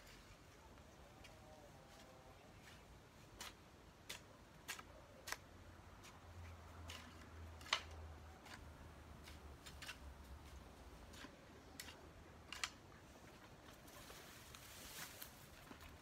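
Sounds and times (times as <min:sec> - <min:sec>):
hoe striking and scraping soil: 0:06.0 - 0:12.8.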